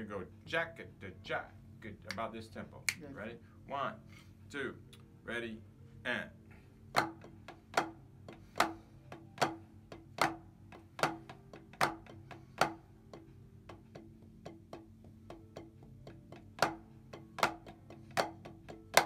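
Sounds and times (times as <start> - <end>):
drumsticks on practice pads: 6.9 - 19.0.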